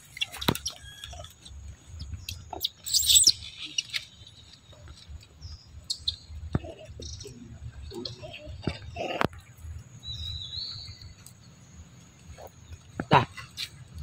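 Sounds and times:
rustling grass and dry leaves: 0.0 - 14.0
high-pitched animal chirps: 2.5 - 4.0.

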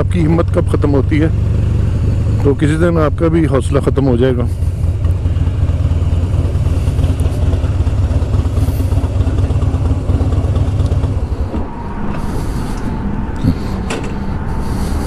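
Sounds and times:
motorcycle engine running: 0.0 - 11.6.

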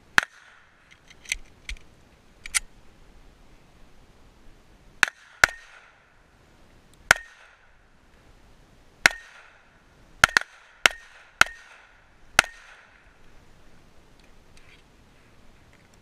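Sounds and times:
pistol shots with ringing tail: 5.0 - 6.1, 7.1 - 7.8, 9.0 - 13.1.

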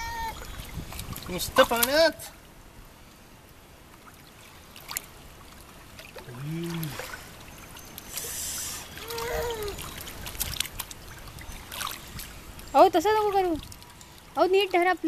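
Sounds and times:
pool water splashing: 0.0 - 15.0
low voice hum: 6.2 - 7.2, 8.2 - 9.9.

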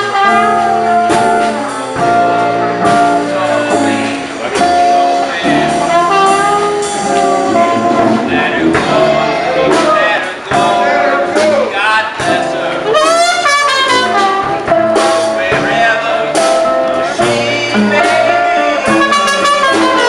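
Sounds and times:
brass and saxophones: 0.0 - 11.7, 12.4 - 20.0
acoustic guitar: 0.0 - 20.0
drum kit: 0.0 - 20.0
sousaphone bass: 0.0 - 20.0.

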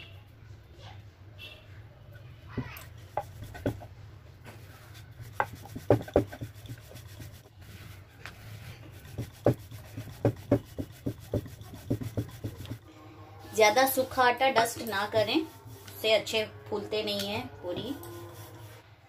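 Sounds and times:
rolling pin on dough: 2.6 - 12.8.

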